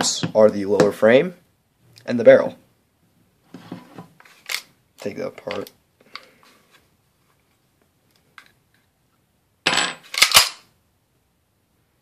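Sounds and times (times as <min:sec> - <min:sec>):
pistol parts clicking: 0:04.4 - 0:04.7, 0:10.1 - 0:10.7.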